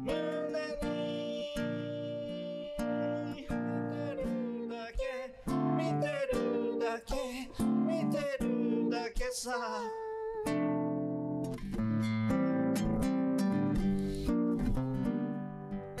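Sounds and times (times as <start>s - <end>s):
acoustic guitar strumming: 0.0s - 7.0s, 7.6s - 9.0s, 10.4s - 16.0s
man singing: 0.0s - 10.6s.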